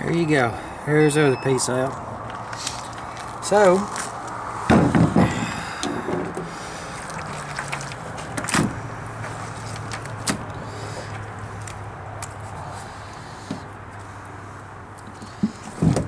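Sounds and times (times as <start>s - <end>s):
knocks and scrapes on wood: 4.7s - 5.3s, 15.1s - 16.0s.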